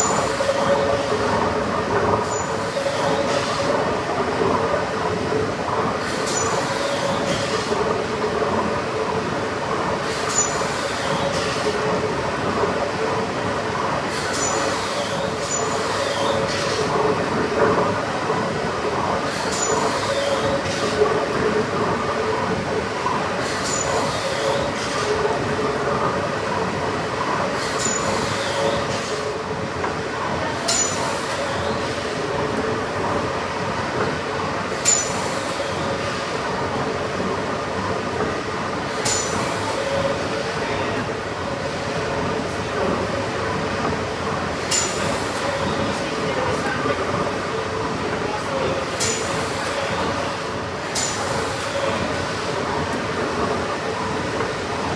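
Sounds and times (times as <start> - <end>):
steam engine rumble and clatter: 0.0 - 54.9
sharp steam hiss and click: 10.0 - 11.7, 14.0 - 17.0, 23.4 - 25.1, 27.6 - 29.3, 50.8 - 52.5.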